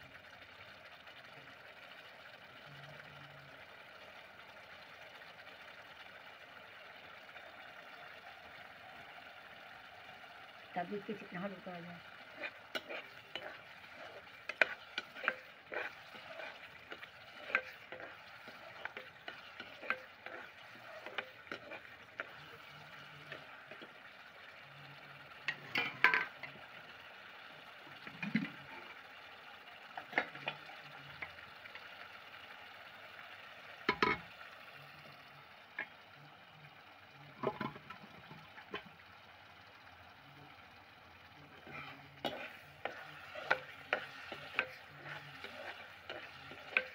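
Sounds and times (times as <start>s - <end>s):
thick gravy bubbling and hissing: 0.0s - 46.9s
metal spoon scraping and knocking pan: 12.2s - 24.0s, 25.5s - 26.4s, 33.9s - 34.3s, 41.6s - 46.9s.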